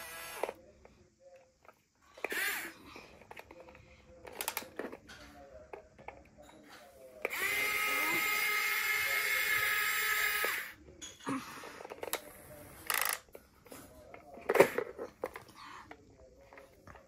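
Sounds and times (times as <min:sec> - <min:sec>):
toy excavator motors whining: 0:00.0 - 0:00.6, 0:02.2 - 0:03.5, 0:07.2 - 0:10.8, 0:12.8 - 0:13.3.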